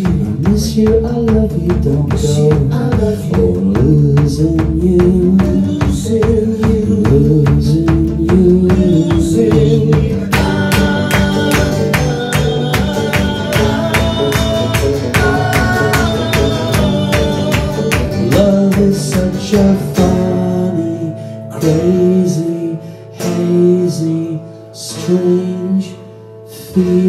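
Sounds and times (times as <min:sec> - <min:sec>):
drums keeping a beat: 0:00.0 - 0:21.0
electric bass: 0:00.0 - 0:22.9
strummed acoustic guitar: 0:00.0 - 0:27.0.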